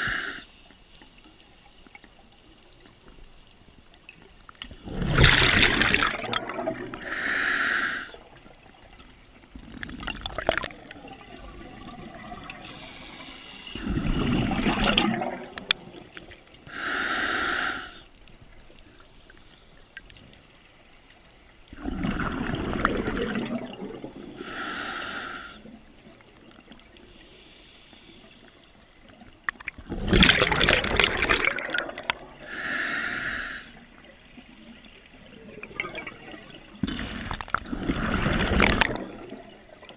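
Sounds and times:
exhaled bubbles gushing: 4.8 - 7.1, 9.5 - 12.7, 13.8 - 16.2, 21.7 - 24.4, 29.5 - 32.5, 33.8 - 39.9.

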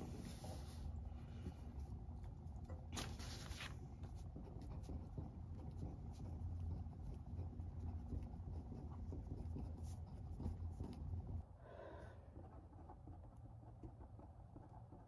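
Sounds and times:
soft rustle: 0.0 - 2.0, 2.9 - 4.2
low steady hum: 0.0 - 15.0
pen scratching on paper: 3.1 - 11.4.

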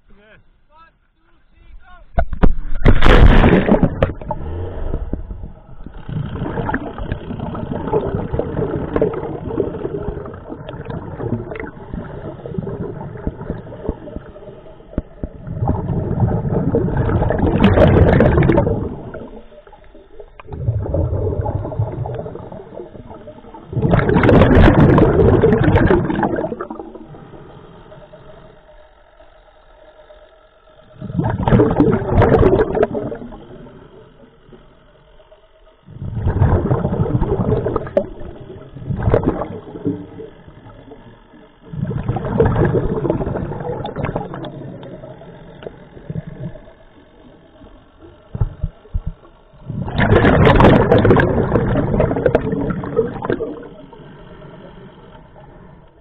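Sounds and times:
water rushing: 2.2 - 27.2, 31.0 - 34.0, 35.9 - 41.0, 48.0 - 56.0
underwater regulator bubbling exhalations: 2.6 - 19.4, 20.2 - 27.4, 31.0 - 33.7, 35.9 - 46.8, 48.3 - 54.1
quiet breathing through regulator: 4.2 - 17.2, 26.4 - 31.2, 33.0 - 36.3, 52.5 - 56.0.

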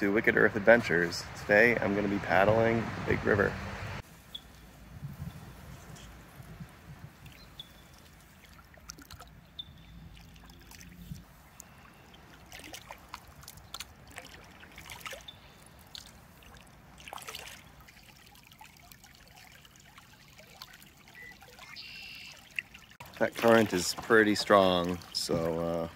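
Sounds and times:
trickle of flowing water: 4.0 - 25.9
paddle splashing in water: 5.4 - 25.9.

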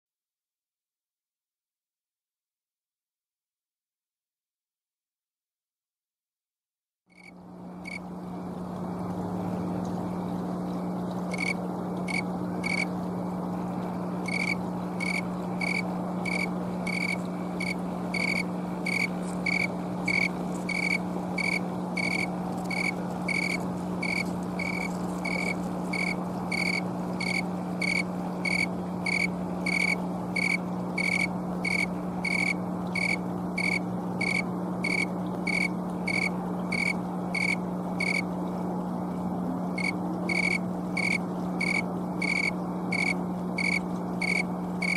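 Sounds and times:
cricket chirping: 7.1 - 8.0, 11.3 - 12.9, 14.2 - 38.2, 39.8 - 44.9
low hum: 7.3 - 44.9.

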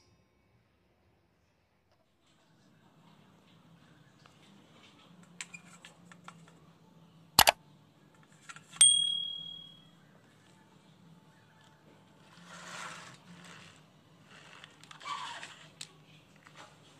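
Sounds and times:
metal bowl ringing: 8.8 - 9.9.

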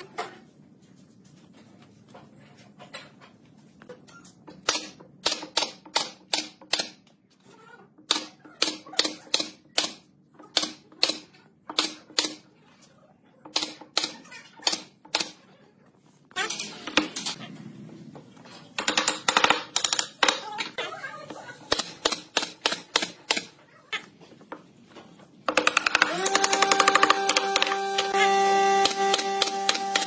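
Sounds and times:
nail gun firing: 28.7 - 30.0.

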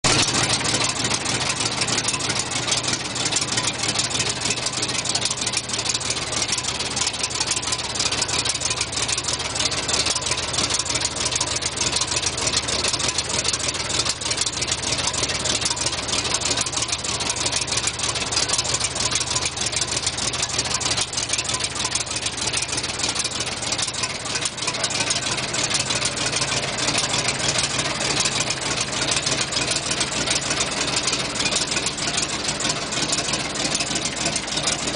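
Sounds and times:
gasoline engine idling: 0.0 - 34.9.

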